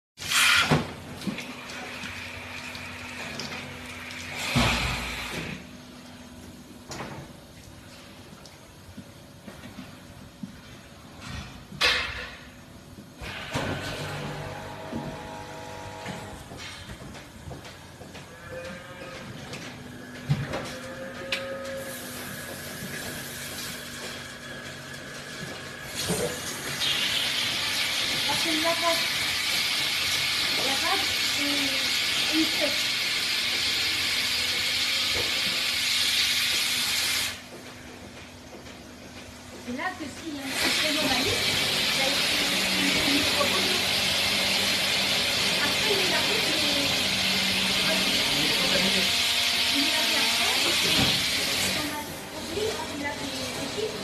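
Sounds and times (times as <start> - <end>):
milking machine hissing: 0.2 - 5.6, 21.3 - 37.6, 40.3 - 54.0
machine hum: 41.1 - 54.0.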